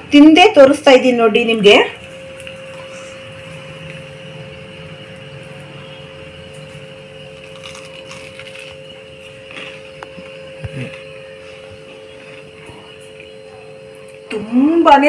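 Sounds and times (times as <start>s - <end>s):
low electrical hum: 0.0s - 15.0s
crunching and chewing toast: 6.4s - 14.2s.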